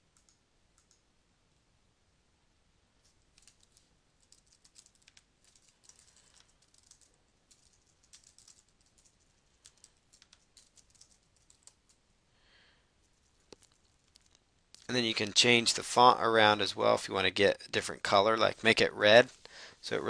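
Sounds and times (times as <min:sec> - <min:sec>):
keyboard typing: 0:00.0 - 0:01.0, 0:03.0 - 0:12.0.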